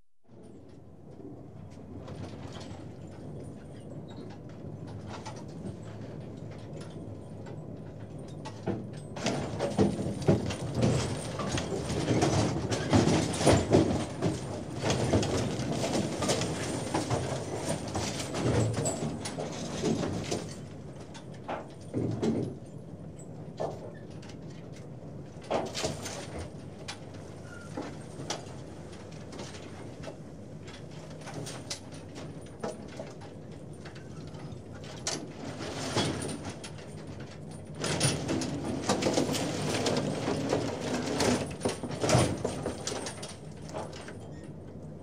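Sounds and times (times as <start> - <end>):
knocks and clanks: 8.4 - 22.6, 33.9 - 44.2.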